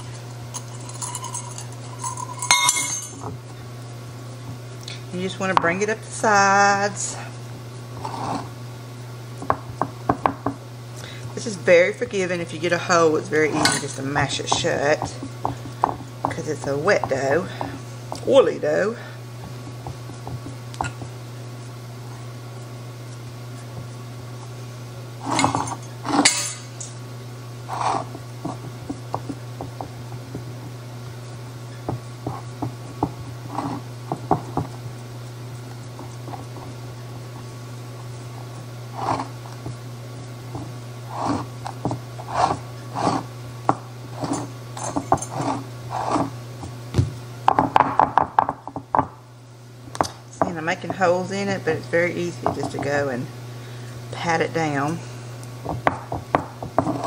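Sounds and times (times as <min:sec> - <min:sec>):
steady low hum: 0:00.0 - 0:57.0
fingers patting dough: 0:09.4 - 0:10.6, 0:14.2 - 0:18.3, 0:19.4 - 0:21.8, 0:27.7 - 0:37.4, 0:55.6 - 0:57.0
pie dish scraping on countertop: 0:32.2 - 0:34.6, 0:41.1 - 0:43.3, 0:44.2 - 0:46.4, 0:56.8 - 0:57.0.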